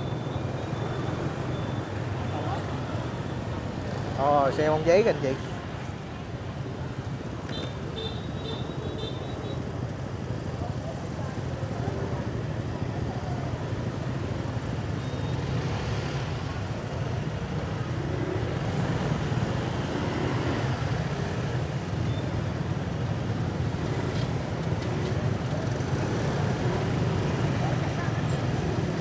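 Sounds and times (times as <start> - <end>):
scooter engines rumbling: 0.0 - 29.0
street noise: 0.0 - 29.0.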